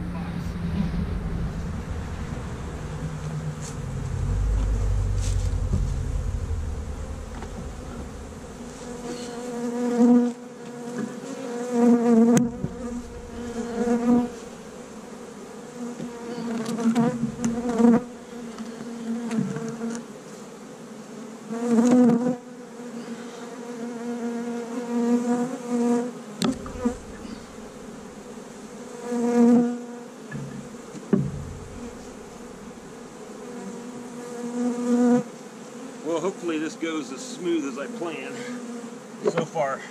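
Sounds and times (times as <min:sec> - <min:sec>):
honey bees buzzing: 0:00.0 - 0:39.9
sharp knocks: 0:03.1 - 0:09.4, 0:30.3 - 0:32.6.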